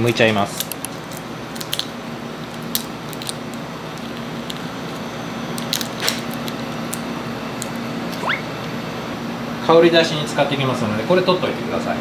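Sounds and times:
prawn shell clicking and crackling: 0.0s - 7.8s
steady low hum: 0.0s - 12.0s.

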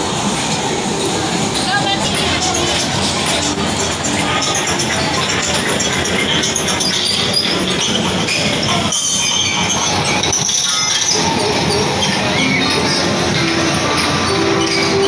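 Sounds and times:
crowd noise: 0.0s - 15.0s
loud music: 1.2s - 7.4s.

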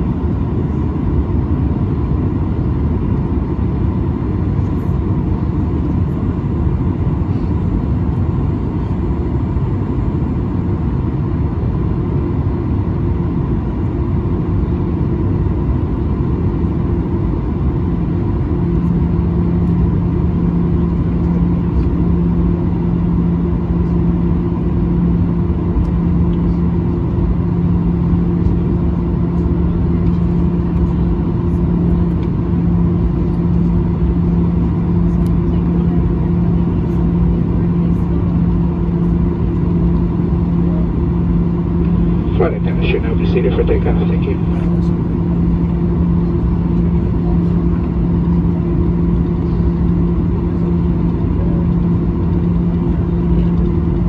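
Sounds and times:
jet engines at taxi power: 0.0s - 54.0s
steady hum: 16.8s - 54.0s.

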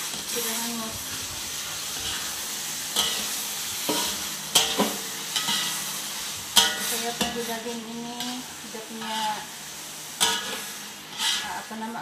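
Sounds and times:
stew sizzling in pot: 0.0s - 12.0s
utensil scraping and knocking pot: 10.2s - 11.6s.

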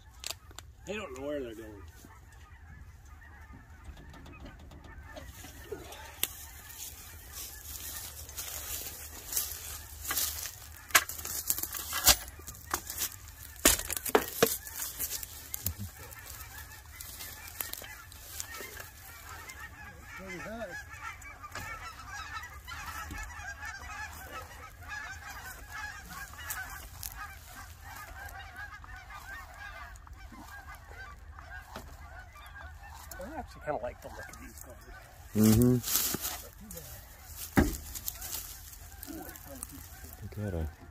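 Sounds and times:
geese honking: 0.0s - 40.9s
sharp knocks and clanks: 3.5s - 5.6s.

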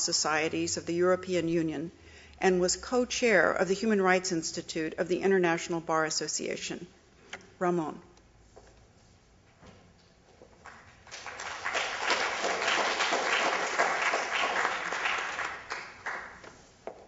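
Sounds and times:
audience applauding: 10.6s - 16.5s.

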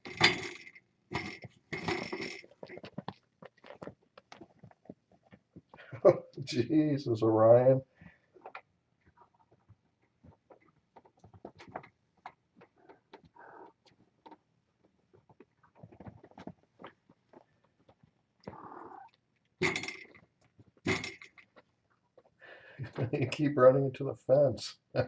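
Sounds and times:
small paws scuffing and tapping: 1.1s - 6.0s, 8.0s - 22.4s.

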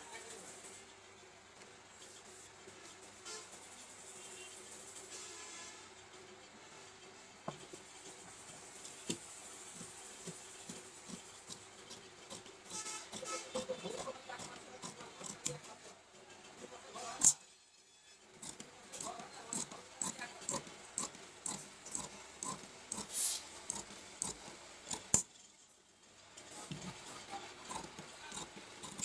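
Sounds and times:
shears snipping fabric: 9.8s - 15.8s, 18.4s - 25.3s, 26.7s - 29.0s.

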